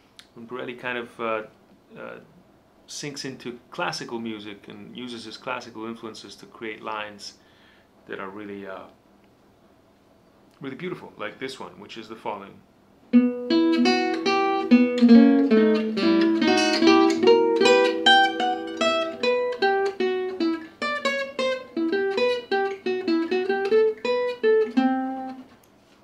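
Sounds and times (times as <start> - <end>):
acoustic guitar single-note lick: 13.1 - 25.4.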